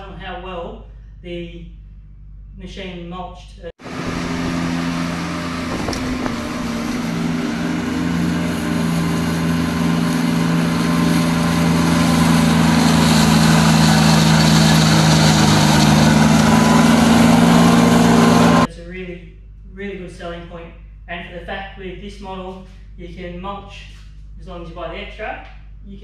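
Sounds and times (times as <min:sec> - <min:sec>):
mower deck cutting long grass: 0:03.8 - 0:18.7
ride-on mower engine running: 0:03.8 - 0:18.7.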